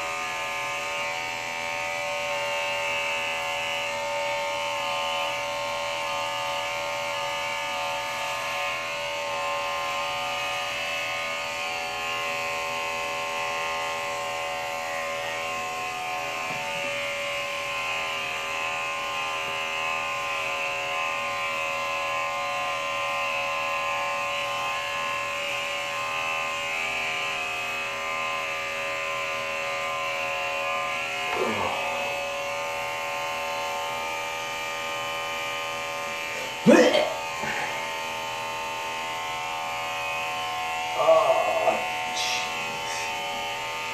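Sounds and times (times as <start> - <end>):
electric hair clippers buzzing: 0.0 - 43.9.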